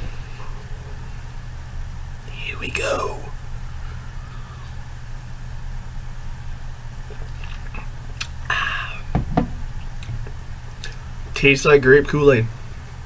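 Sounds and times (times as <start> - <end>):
steady low hum: 0.0 - 13.0
breathy exhale: 3.8 - 4.8, 8.5 - 9.1
low knock: 9.1 - 9.6.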